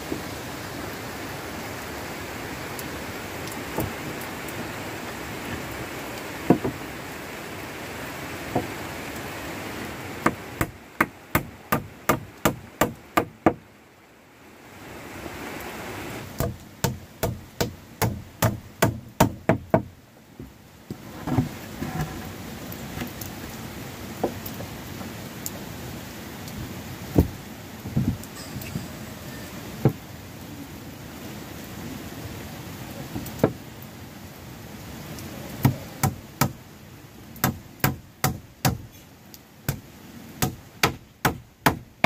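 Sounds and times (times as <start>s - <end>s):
steady hiss: 0.0s - 42.0s
hammering on wood: 6.5s - 6.8s, 10.2s - 13.6s, 16.4s - 19.9s, 35.6s - 36.6s, 37.4s - 38.8s, 40.4s - 41.8s.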